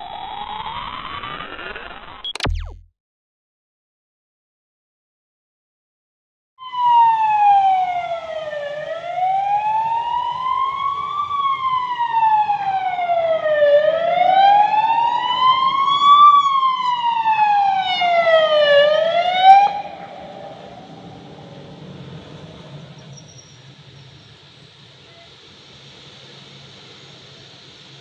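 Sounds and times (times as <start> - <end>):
emergency vehicle siren wailing: 6.6 - 23.2.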